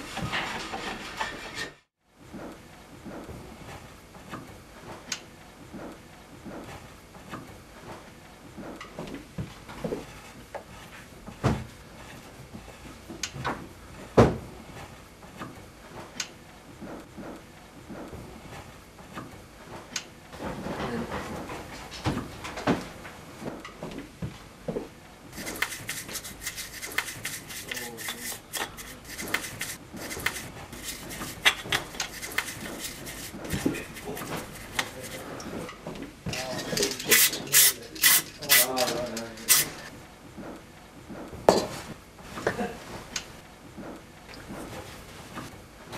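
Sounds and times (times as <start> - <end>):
brush scrubbing metal: 25.4 - 35.4, 36.7 - 39.9.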